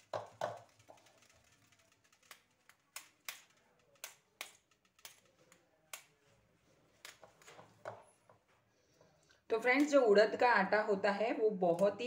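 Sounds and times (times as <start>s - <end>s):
sharp irregular clicks: 0.0s - 6.2s.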